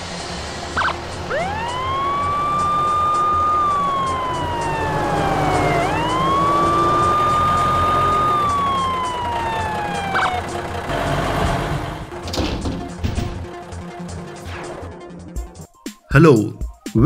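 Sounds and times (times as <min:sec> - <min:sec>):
siren wailing: 0:00.7 - 0:11.5.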